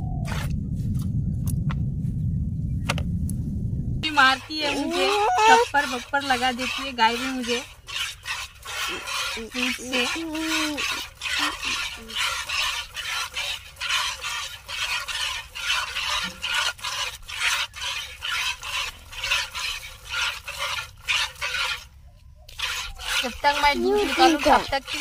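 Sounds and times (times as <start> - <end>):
milk squirting into plastic bucket: 5.7 - 21.9.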